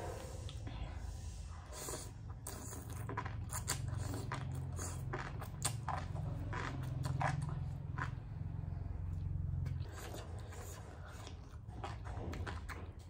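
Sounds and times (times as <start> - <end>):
steady low hum: 0.0 - 13.0
slurping noodles: 1.5 - 8.2
wet chewing and smacking: 1.8 - 13.0.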